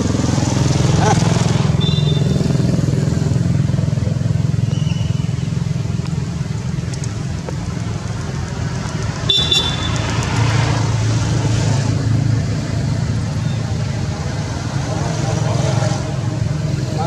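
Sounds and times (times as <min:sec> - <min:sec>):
motor engine humming: 0:00.0 - 0:10.4.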